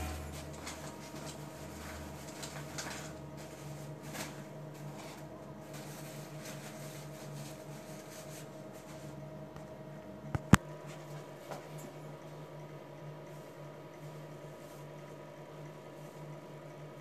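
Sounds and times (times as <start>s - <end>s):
soft rustles and clicks: 0.0s - 12.0s
steady low hum and hiss: 0.0s - 17.0s.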